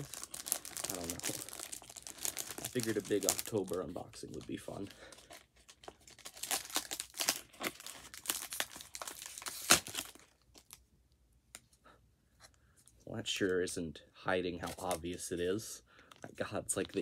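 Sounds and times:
plastic wrapping crinkling: 0:00.0 - 0:10.8.

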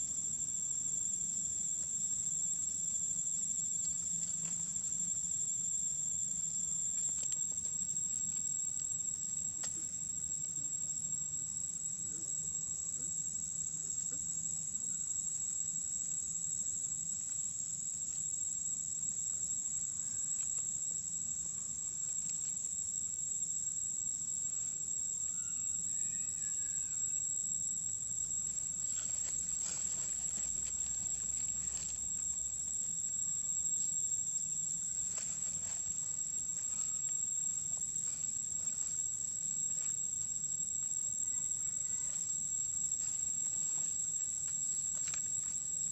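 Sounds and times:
insects droning: 0:00.0 - 0:45.9
rustles in dry leaves: 0:28.8 - 0:32.3.

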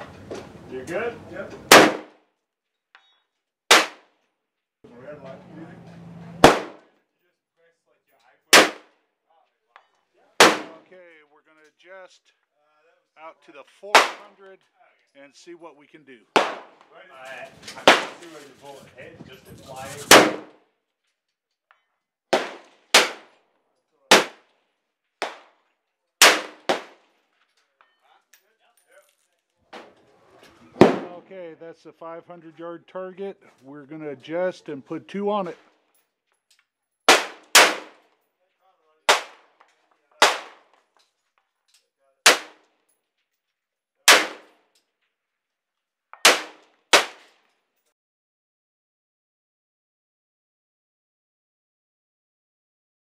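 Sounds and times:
rifle shots with echo: 0:01.7 - 0:02.2, 0:03.7 - 0:04.1, 0:06.4 - 0:06.9, 0:08.5 - 0:08.9, 0:10.4 - 0:10.8, 0:13.9 - 0:14.4, 0:16.4 - 0:16.9, 0:17.8 - 0:18.2, 0:20.0 - 0:20.5, 0:22.3 - 0:23.4, 0:24.1 - 0:24.5, 0:25.2 - 0:25.6, 0:26.2 - 0:27.1, 0:30.8 - 0:31.3, 0:37.1 - 0:38.1, 0:39.1 - 0:39.6, 0:40.2 - 0:40.7, 0:42.3 - 0:42.6, 0:44.1 - 0:44.6, 0:46.2 - 0:47.3.

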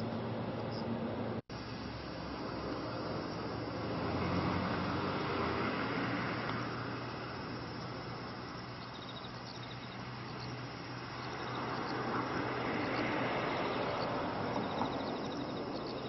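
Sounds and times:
faint high rhythmic chirping: 0:07.1 - 0:16.0.

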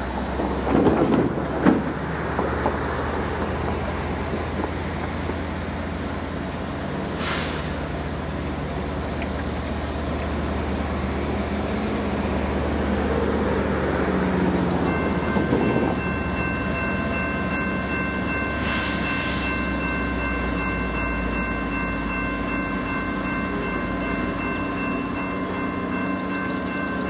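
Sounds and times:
diesel locomotive engine rumble: 0:00.0 - 0:27.0
short hisses: 0:07.2 - 0:07.8.

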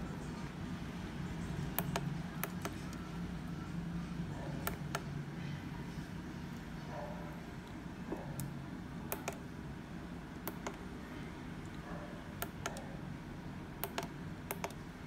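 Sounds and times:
low steady hum: 0:00.0 - 0:15.0
keypad buttons clicking: 0:01.7 - 0:03.0, 0:04.6 - 0:05.1, 0:09.1 - 0:09.4, 0:10.4 - 0:10.9, 0:12.4 - 0:12.9, 0:13.8 - 0:14.8.

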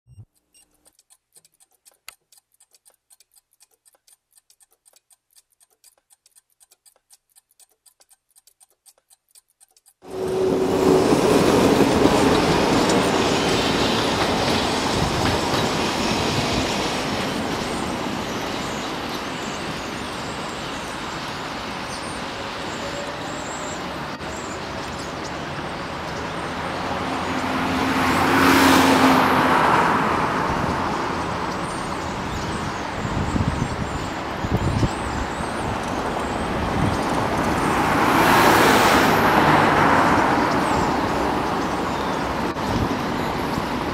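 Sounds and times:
faint ticking clicks: 0:00.1 - 0:10.4
city traffic: 0:00.1 - 0:43.9
vehicle passing close: 0:25.4 - 0:31.7, 0:36.4 - 0:42.6.

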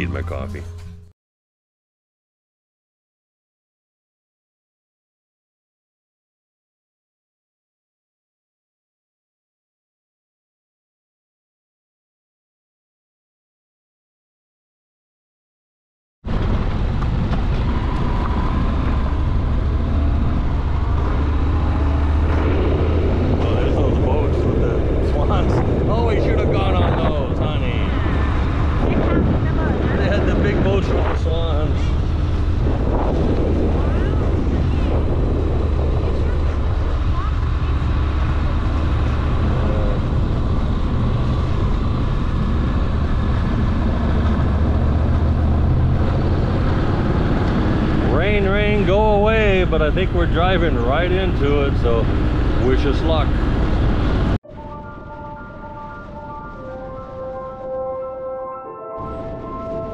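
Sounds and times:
wind and road noise: 0:16.2 - 0:59.9
motorcycle engine hum: 0:16.3 - 0:58.2.

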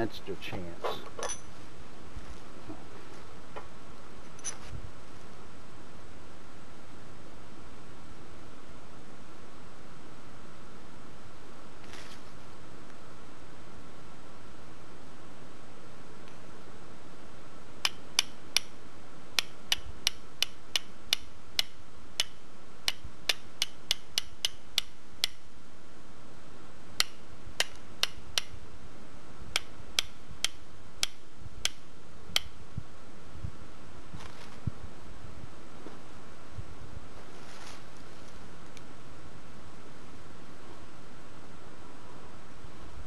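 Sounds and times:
flint striking steel clicks: 0:17.8 - 0:18.8, 0:19.4 - 0:25.4, 0:27.0 - 0:28.6, 0:29.5 - 0:32.6.

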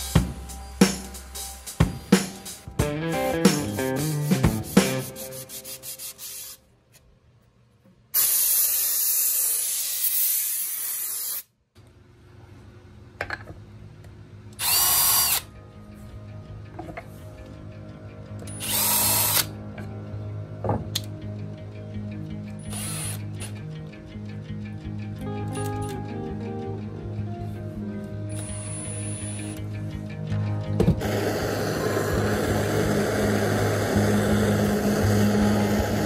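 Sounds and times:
power drill running: 0:14.6 - 0:15.5, 0:18.6 - 0:19.5, 0:22.7 - 0:23.2, 0:31.0 - 0:36.0.

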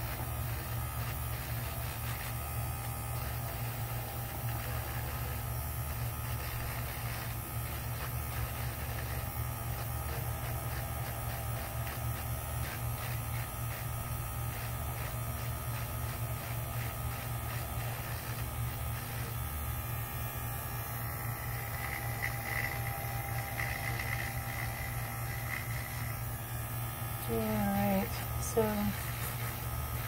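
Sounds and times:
electric nail file sanding: 0:00.0 - 0:30.0.

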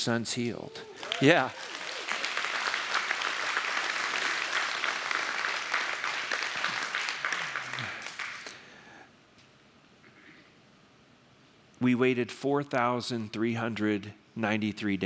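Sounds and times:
crowd applauding: 0:00.7 - 0:08.7.

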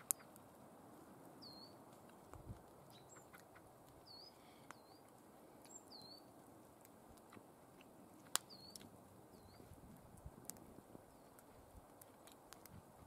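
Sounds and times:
faint bird chirps: 0:01.4 - 0:01.8, 0:02.8 - 0:06.3, 0:07.8 - 0:09.8.

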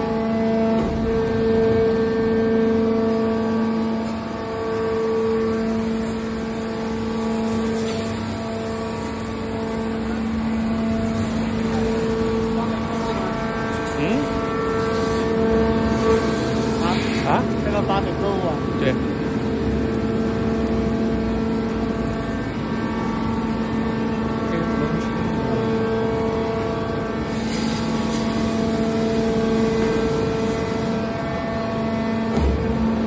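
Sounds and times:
baler machine humming and whining: 0:00.0 - 0:33.0.

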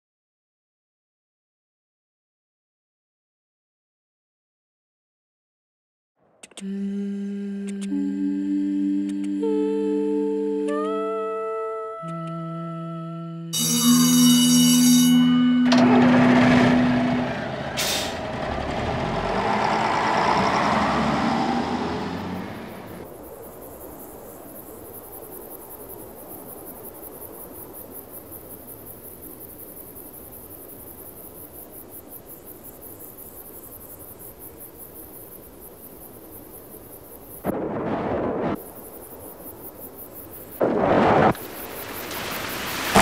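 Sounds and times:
pulsing insect chirr: 0:06.5 - 0:15.6, 0:19.0 - 0:43.0.

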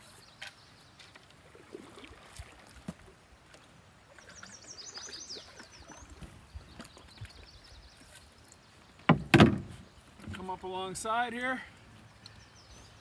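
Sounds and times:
paddle strokes in water: 0:00.0 - 0:11.2
bird chirping: 0:04.2 - 0:09.1, 0:12.0 - 0:13.0
sharp knocks: 0:09.1 - 0:09.7.

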